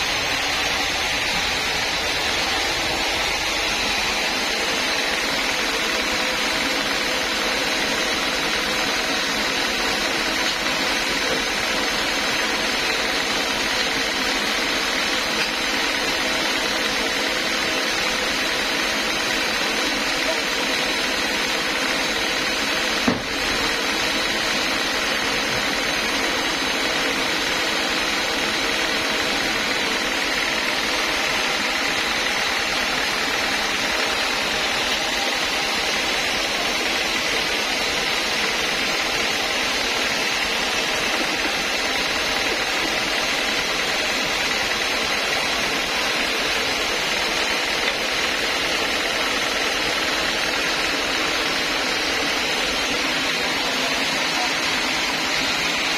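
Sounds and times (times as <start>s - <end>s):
band sawmill droning: 0.0s - 55.9s
sharp knock: 23.0s - 23.4s.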